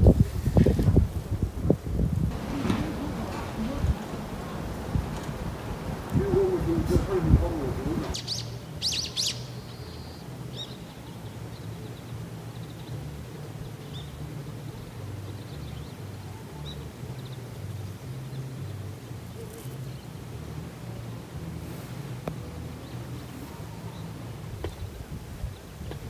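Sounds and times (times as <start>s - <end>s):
wind rumble on microphone: 0.0s - 9.5s, 10.2s - 26.0s
faint bird chirps: 8.1s - 13.1s.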